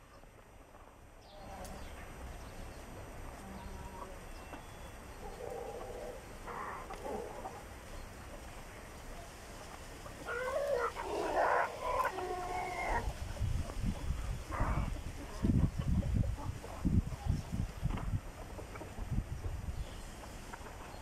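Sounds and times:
chickens calling: 0:00.0 - 0:21.0.

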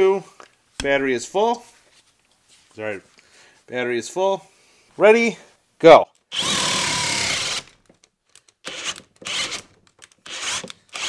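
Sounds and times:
cordless drill boring into wood: 0:06.3 - 0:07.8, 0:08.6 - 0:11.0.

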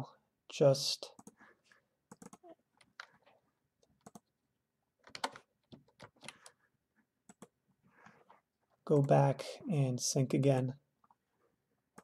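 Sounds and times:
keyboard typing: 0:02.1 - 0:03.1, 0:03.9 - 0:04.3, 0:05.0 - 0:06.6, 0:07.2 - 0:07.6.

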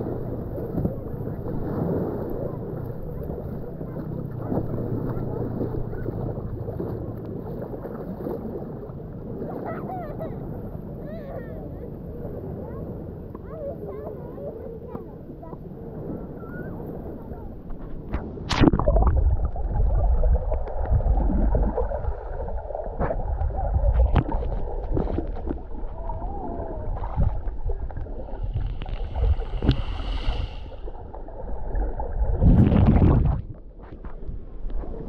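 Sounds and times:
muffled underwater rumble: 0:00.0 - 0:35.0
water splash: 0:17.7 - 0:35.0
underwater clicks and knocks: 0:23.0 - 0:25.8.

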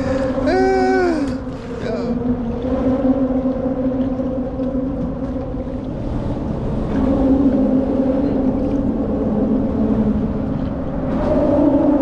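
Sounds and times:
steady motor drone: 0:00.0 - 0:11.8
low rumble: 0:00.0 - 0:12.0.

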